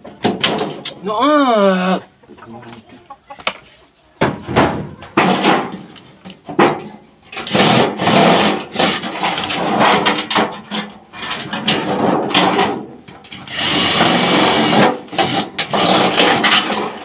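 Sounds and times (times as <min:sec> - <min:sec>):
sharp knocks on sheet metal: 0:04.2 - 0:05.9
hand tools working sheet metal: 0:06.6 - 0:17.0.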